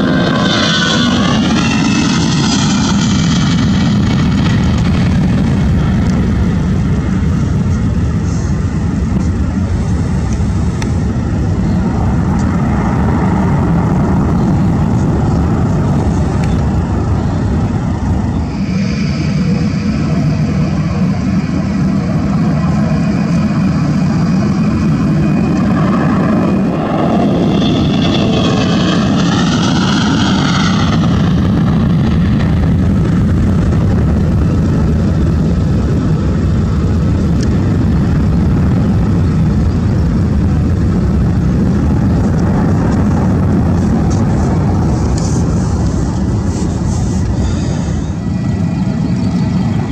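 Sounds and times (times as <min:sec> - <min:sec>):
high turbofan whine: 0:00.0 - 0:49.9
jet engines roaring: 0:00.0 - 0:49.9.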